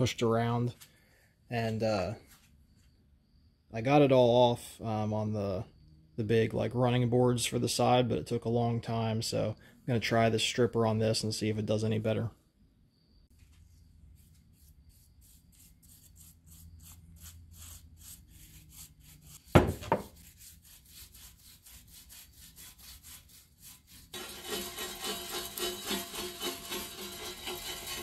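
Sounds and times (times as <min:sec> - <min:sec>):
wire brush scrubbing metal: 0:14.2 - 0:28.0
loud knock: 0:19.6 - 0:20.1
paintbrush stroking metal step: 0:22.6 - 0:28.0.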